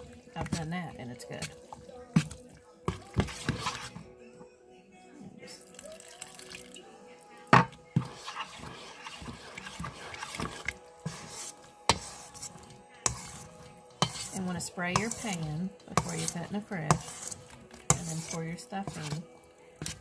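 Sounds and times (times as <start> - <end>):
spoon stirring wet stuffing: 0.0 - 4.3, 5.4 - 20.0
spoon clinking against metal bowl: 13.0 - 19.2.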